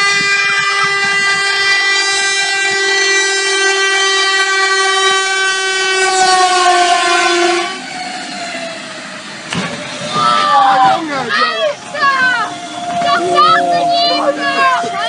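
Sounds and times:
train horn blast: 0.0s - 8.2s, 12.2s - 15.0s
rush of passing train: 0.0s - 15.0s.

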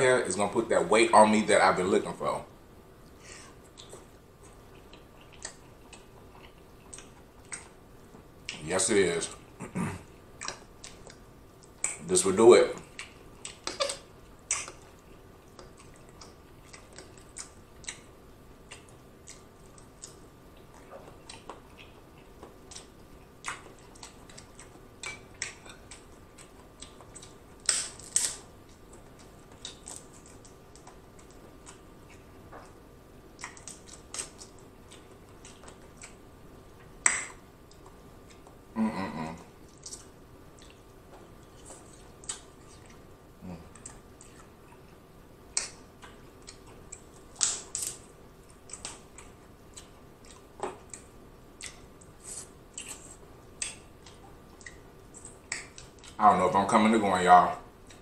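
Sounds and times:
soft chewing: 2.9s - 56.3s, 57.5s - 58.0s
mouth clicks: 37.0s - 40.0s
crab shell cracking: 45.6s - 48.0s.

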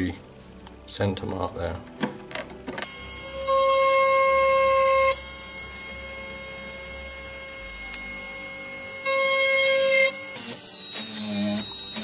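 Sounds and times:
small electric drill whining: 2.8s - 12.0s.

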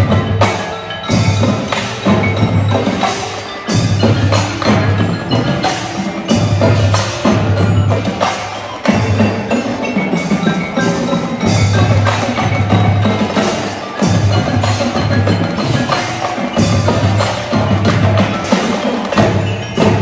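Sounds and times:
drums: 0.0s - 20.0s
marimbas playing: 0.0s - 20.0s.

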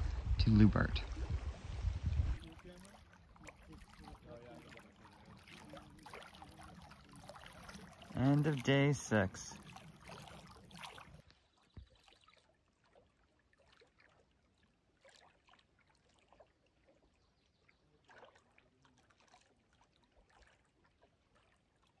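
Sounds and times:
moving water: 0.0s - 22.0s.

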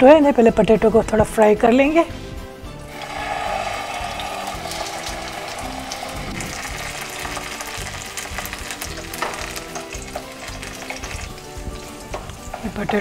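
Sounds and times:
potatoes sizzling in hot oil: 2.9s - 13.0s.

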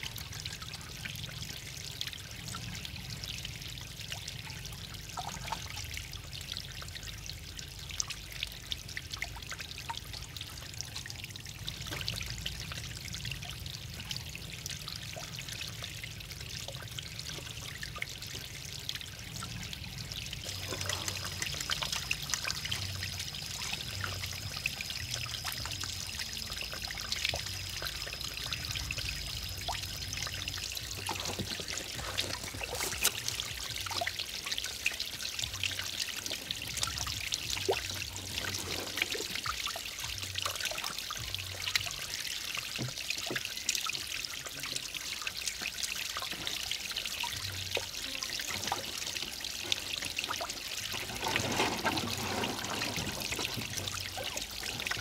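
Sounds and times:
waterfall splashing into pond: 0.0s - 55.0s.

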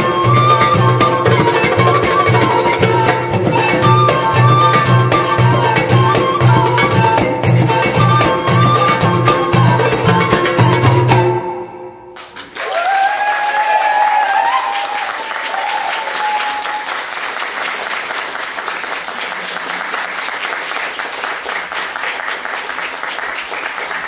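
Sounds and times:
audience applause: 12.2s - 24.0s
crowd cheering: 12.2s - 24.0s.

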